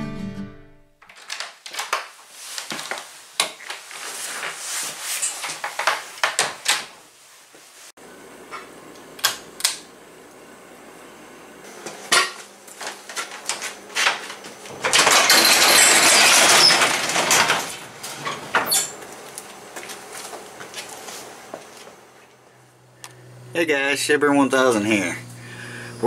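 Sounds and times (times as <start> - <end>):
garage door rattling: 14.0 - 19.0.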